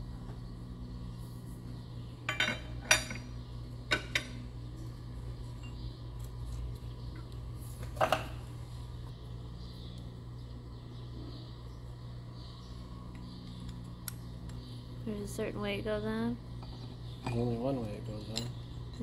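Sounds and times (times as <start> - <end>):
steady low hum: 0.0 - 19.0
metal tools clinking: 2.3 - 4.4, 16.6 - 19.0.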